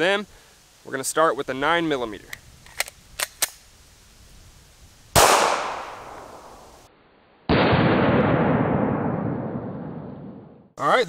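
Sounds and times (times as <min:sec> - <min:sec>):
pistol shot: 0:05.2 - 0:06.6, 0:07.5 - 0:10.4.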